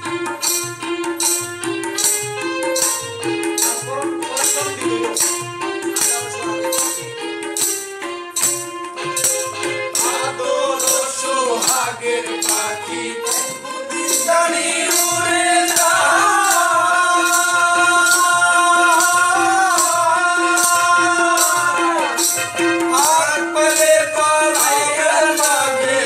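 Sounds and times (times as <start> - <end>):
hand drum: 0.0 - 26.0
jingling percussion: 0.0 - 26.0
man singing: 9.6 - 26.0.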